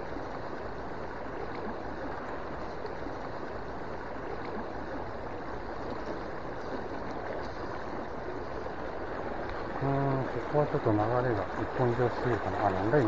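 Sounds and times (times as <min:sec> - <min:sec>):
stream rushing over rocks: 0:08.8 - 0:13.0.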